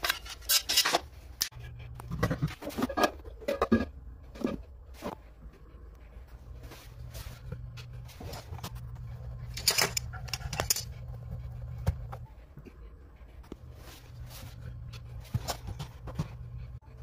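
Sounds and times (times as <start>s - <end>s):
steady low hum: 1.1s - 17.0s
metal fittings clicking and scraping: 9.4s - 11.0s.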